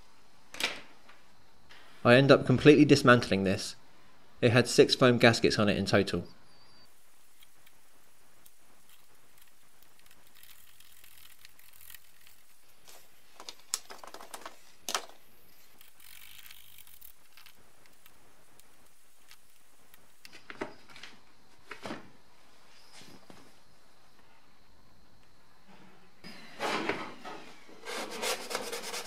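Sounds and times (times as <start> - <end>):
plastic parts clicking and knocking: 13.4 - 18.1.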